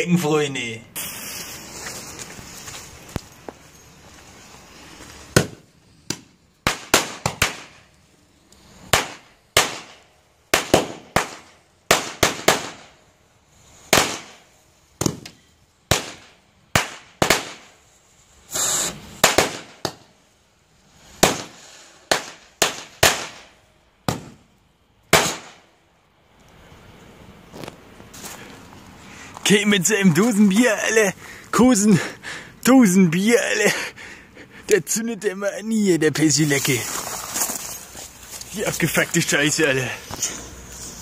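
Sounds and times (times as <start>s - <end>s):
firecrackers banging: 0.9s - 8.0s, 8.7s - 13.0s, 13.7s - 17.8s, 18.5s - 20.2s, 20.9s - 24.5s, 25.1s - 25.7s
hissing crackle: 0.9s - 31.5s, 35.9s - 41.0s.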